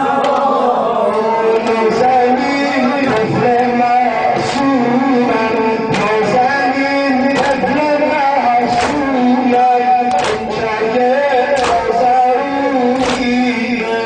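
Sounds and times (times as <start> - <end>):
man chanting a lament: 0.0 - 14.0
sharp slaps: 7.3 - 12.2, 12.9 - 13.8.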